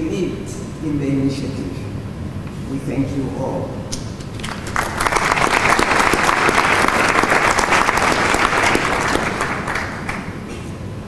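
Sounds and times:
audience applauding: 0:04.3 - 0:10.5.

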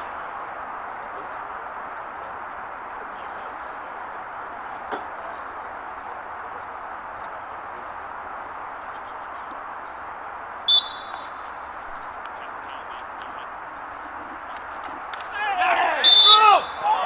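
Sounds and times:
steady background noise: 0:00.0 - 0:17.0
whistle blast: 0:10.7 - 0:11.5, 0:16.0 - 0:17.0.

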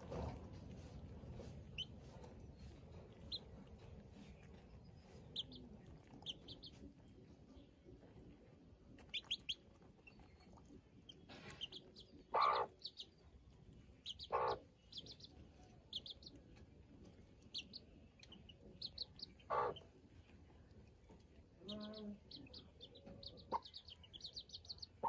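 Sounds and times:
chicks peeping: 0:00.0 - 0:25.0
hen calling: 0:12.3 - 0:12.8, 0:19.4 - 0:19.8.

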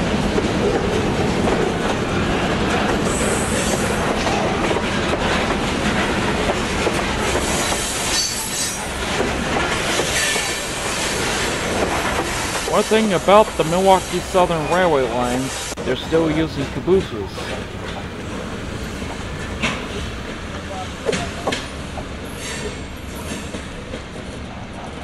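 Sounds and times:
high wheel squeals: 0:07.4 - 0:08.9.

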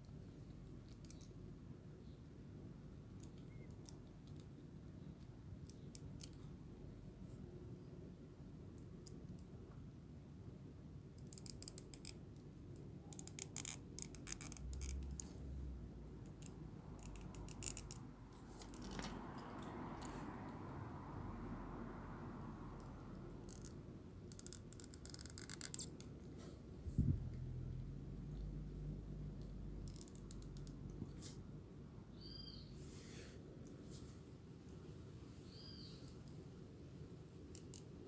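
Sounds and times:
plastic toy clicking: 0:11.2 - 0:12.2, 0:13.1 - 0:15.3.

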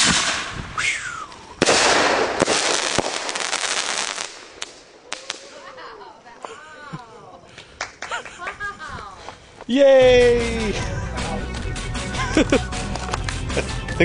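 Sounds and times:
firework bang: 0:00.0 - 0:00.8, 0:01.6 - 0:05.7
firework crackling: 0:00.0 - 0:06.5.

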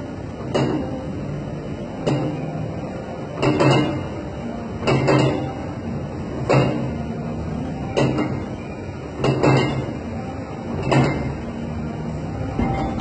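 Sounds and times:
steady low hum: 0:00.0 - 0:13.0
gym machine metal clanks: 0:00.4 - 0:01.0, 0:02.0 - 0:02.5, 0:03.4 - 0:04.2, 0:04.8 - 0:05.6, 0:06.4 - 0:07.0, 0:07.9 - 0:08.5, 0:09.2 - 0:10.0, 0:10.7 - 0:11.6, 0:12.4 - 0:13.0.

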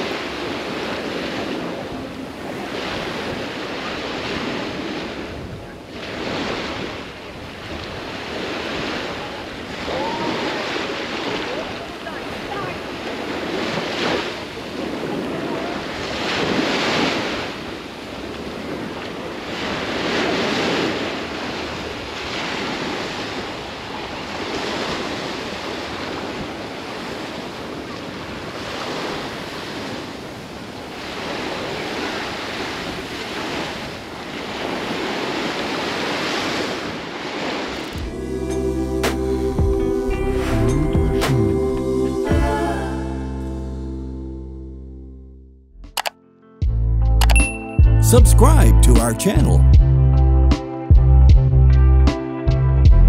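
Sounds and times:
waves breaking on shore: 0:00.0 - 0:40.6
music with low beat: 0:38.0 - 0:42.6, 0:47.4 - 0:50.0, 0:50.9 - 0:51.6.

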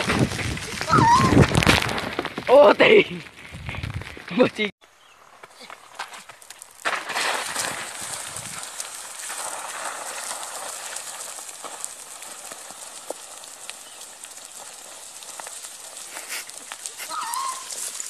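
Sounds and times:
clicks of small stones: 0:05.7 - 0:18.0.

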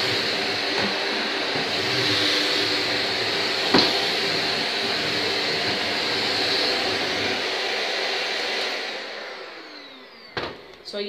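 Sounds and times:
vacuum cleaner running: 0:00.0 - 0:11.0
vacuum motor winding down: 0:00.0 - 0:11.0.

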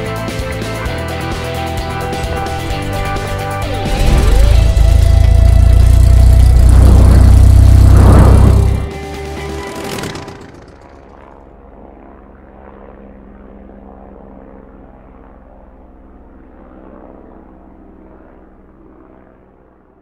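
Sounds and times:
low mechanical drone: 0:00.0 - 0:13.4.

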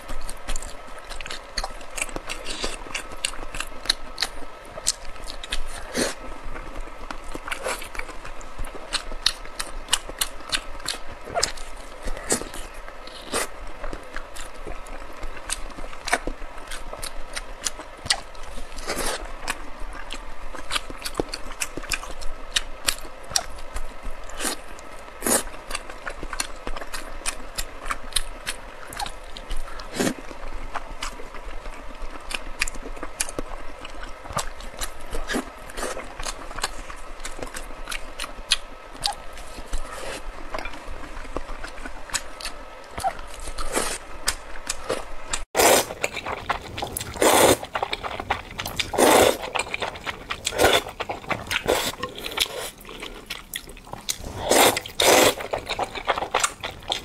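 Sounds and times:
wet chewing mouth clicks: 0:32.7 - 0:57.0
noodle slurping: 0:45.6 - 0:57.0.

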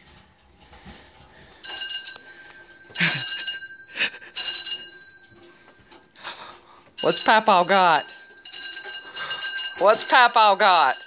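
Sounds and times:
bicycle bell ringing: 0:01.6 - 0:06.1, 0:07.0 - 0:11.0.

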